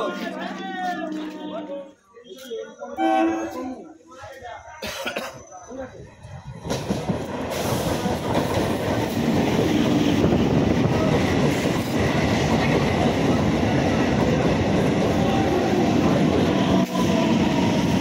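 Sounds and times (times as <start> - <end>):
train wheels rumbling on rails: 6.1 - 18.0.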